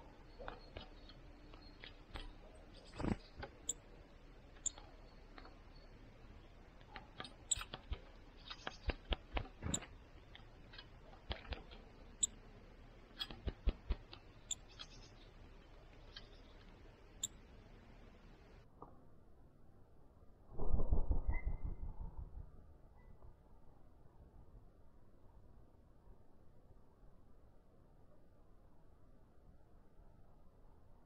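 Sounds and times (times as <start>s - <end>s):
bird pecking at wire feeder: 6.7s - 12.4s, 13.0s - 16.7s.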